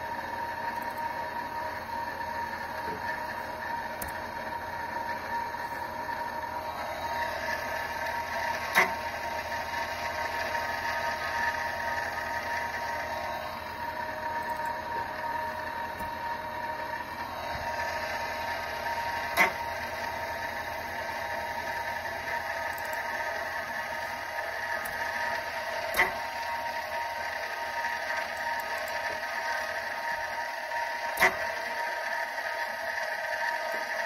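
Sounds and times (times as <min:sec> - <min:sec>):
electric motor whine: 0:00.0 - 0:34.0
sharp clicks: 0:04.0 - 0:04.2.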